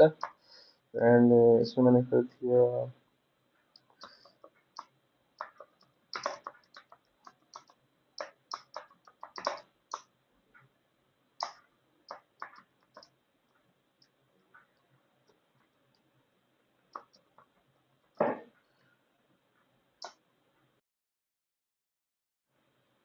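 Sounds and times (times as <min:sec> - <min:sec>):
typing on a keyboard: 0:03.8 - 0:10.1, 0:11.4 - 0:13.2.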